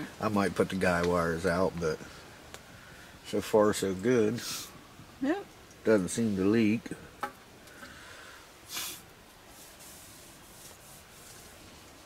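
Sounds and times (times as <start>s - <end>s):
faint steady hiss: 0.0s - 12.0s
sharp sniff through nose: 4.4s - 4.8s, 8.6s - 10.4s.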